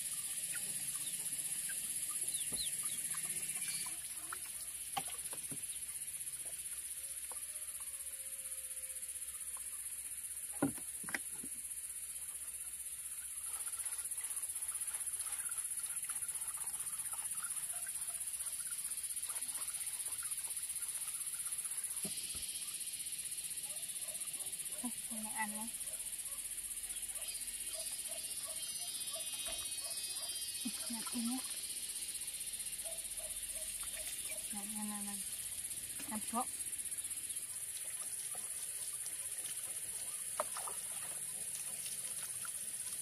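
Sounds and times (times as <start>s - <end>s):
insect chorus drone: 0.0s - 43.0s.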